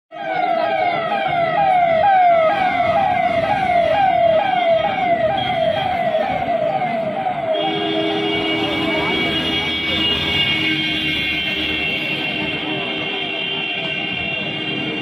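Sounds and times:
vehicles passing: 0:00.2 - 0:15.0.

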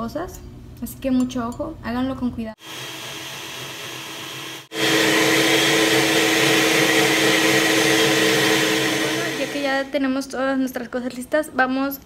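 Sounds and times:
blender motor whirring: 0:02.6 - 0:10.0.

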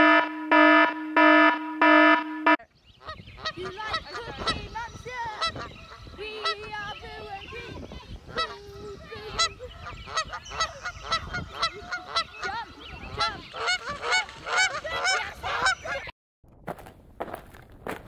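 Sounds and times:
flock of birds honking: 0:03.0 - 0:16.1.

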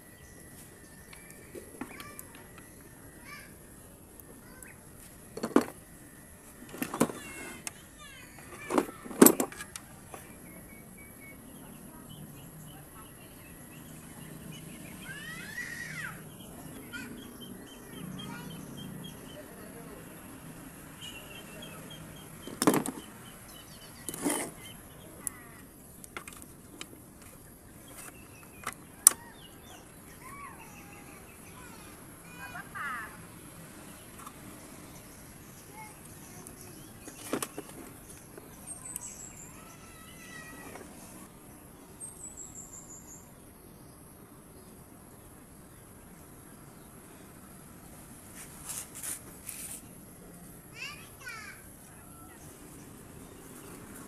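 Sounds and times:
birds chirping: 0:00.0 - 0:54.0
tools clicking and knocking on table: 0:05.4 - 0:05.8, 0:08.4 - 0:09.8, 0:22.4 - 0:23.1.

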